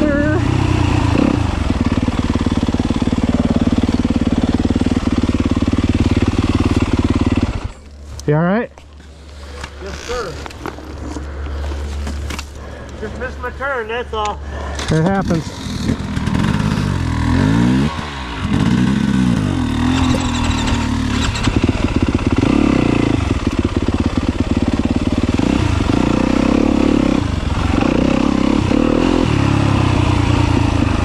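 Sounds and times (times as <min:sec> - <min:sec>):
dirt bike engine revving: 0:00.0 - 0:07.8, 0:14.8 - 0:31.0.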